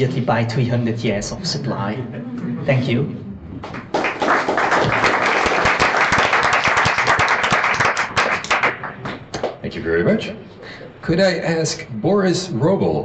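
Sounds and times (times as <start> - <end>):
audience applauding: 3.6 - 9.6.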